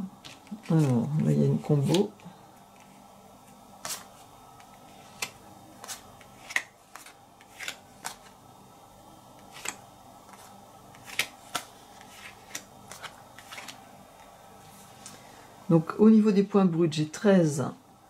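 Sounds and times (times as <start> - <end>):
cards slapping on a table: 11.0 - 13.8.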